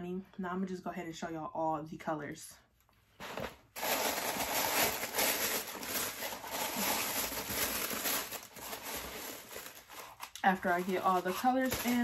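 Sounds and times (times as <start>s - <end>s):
packaging rustling and crinkling: 3.2s - 12.0s.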